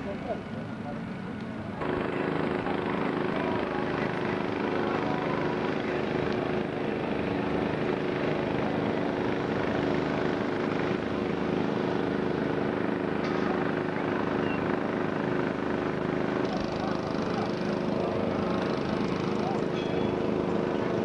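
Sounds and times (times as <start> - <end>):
engine drone: 0.0 - 21.0.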